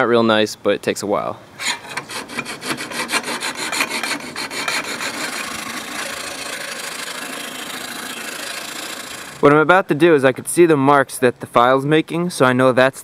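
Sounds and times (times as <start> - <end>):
metal file rasping on steel: 1.6 - 9.4.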